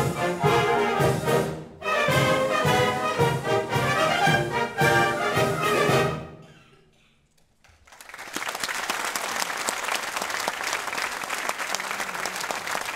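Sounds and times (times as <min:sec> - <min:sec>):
brass and woodwind band chord: 0:00.0 - 0:06.4
audience applause: 0:07.7 - 0:12.9.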